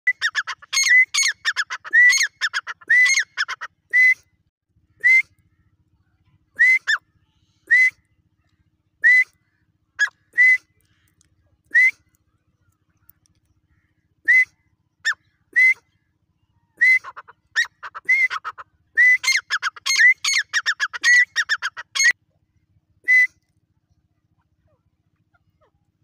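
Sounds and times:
bird calling ringing notes: 0.1 - 3.9, 9.2 - 11.1, 12.0 - 22.2.

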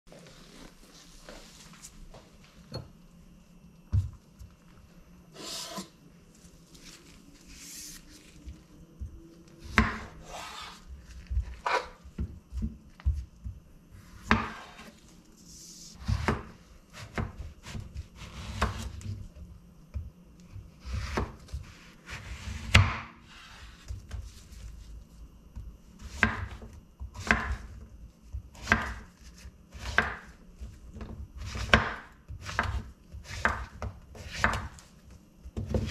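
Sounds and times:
soft rubbing of handling: 0.1 - 2.6.

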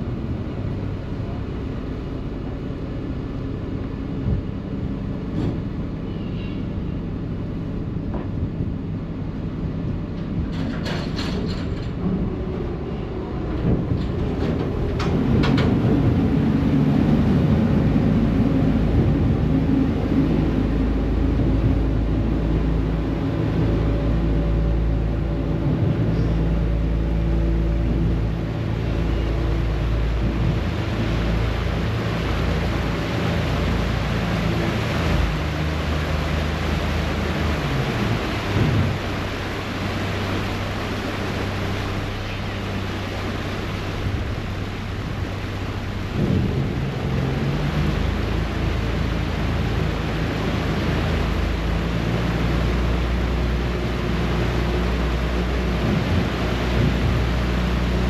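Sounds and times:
diesel engine drone: 0.0 - 58.0
wind: 0.0 - 58.0
propeller wash churning: 12.6 - 58.0.

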